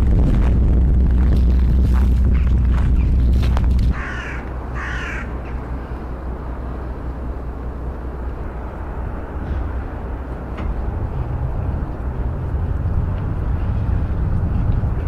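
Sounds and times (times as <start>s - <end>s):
low steady rumble: 0.0s - 15.0s
wind buffeting microphone: 0.0s - 15.0s
crows cawing: 3.9s - 5.6s.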